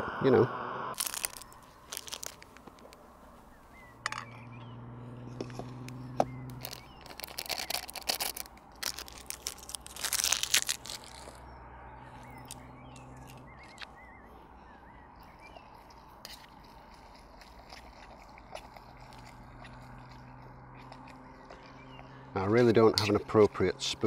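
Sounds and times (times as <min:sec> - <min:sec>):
low hum: 0:00.0 - 0:08.8
crunchy rustling: 0:01.0 - 0:04.3, 0:05.0 - 0:14.0, 0:15.3 - 0:22.2
faint bird chirps: 0:03.4 - 0:05.4, 0:11.4 - 0:16.2.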